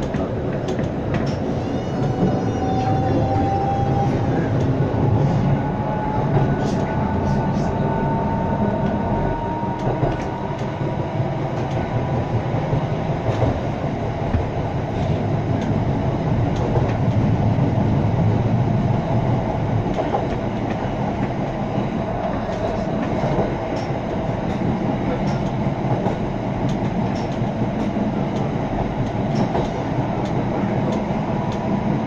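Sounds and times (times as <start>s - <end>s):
tram wheels rumbling: 0.0s - 32.0s
light clicks from track: 22.5s - 31.7s.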